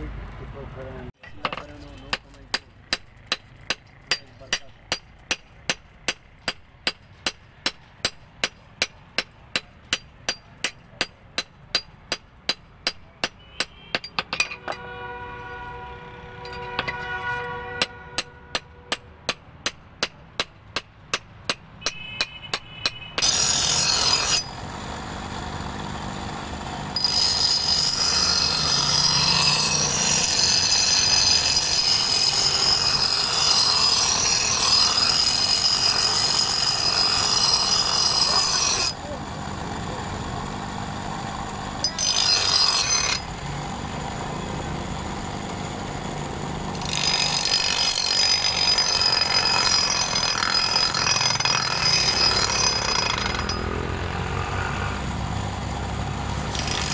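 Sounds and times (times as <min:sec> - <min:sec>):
hammer striking metal on anvil: 0:01.2 - 0:14.9, 0:16.4 - 0:24.4
bench grinder grinding metal: 0:23.2 - 0:56.9.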